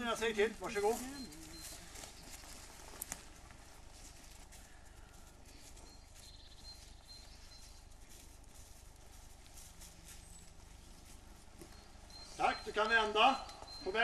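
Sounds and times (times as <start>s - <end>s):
footsteps on forest floor: 0.0s - 14.0s
high bird chirps: 5.8s - 8.0s, 11.6s - 14.0s.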